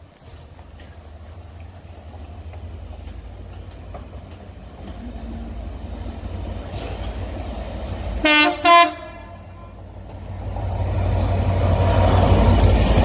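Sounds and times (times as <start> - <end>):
diesel locomotive rumble: 0.0 - 13.0.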